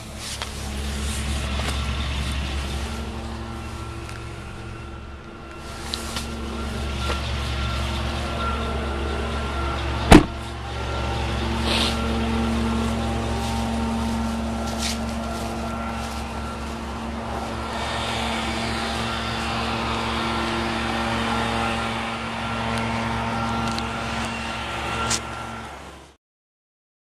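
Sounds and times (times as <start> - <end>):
truck engine idling: 0.0 - 26.1
loud sharp thump: 10.1 - 10.4.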